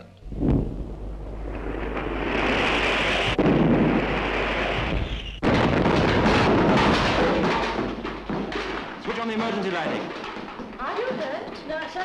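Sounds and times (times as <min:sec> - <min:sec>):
rush of noise: 0:00.2 - 0:05.4
bomb explosions: 0:00.2 - 0:10.8
rumble and crash: 0:00.2 - 0:12.0.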